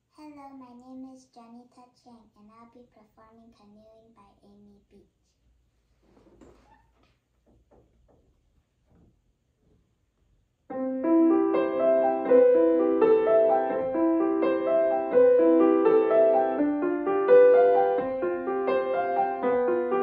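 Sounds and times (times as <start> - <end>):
grand piano playing: 10.7 - 20.0.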